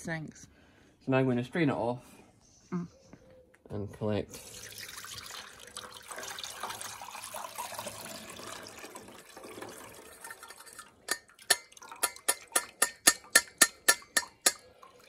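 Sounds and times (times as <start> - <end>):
water pouring through a sieve: 4.3 - 12.9.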